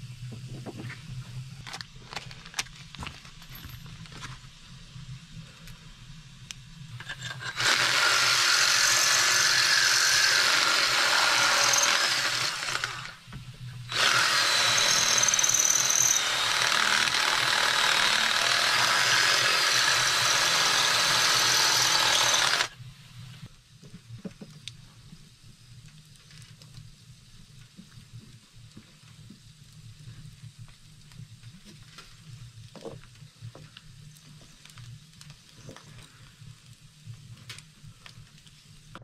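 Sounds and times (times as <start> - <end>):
faint high whine: 3.4 - 23.7
cordless drill boring through metal: 7.0 - 13.3, 13.9 - 22.8.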